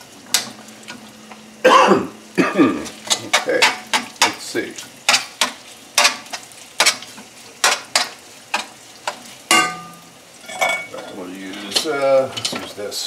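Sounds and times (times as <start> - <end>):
light sizzle: 0.0 - 13.0
ringing metal clang on pan: 9.5 - 10.9.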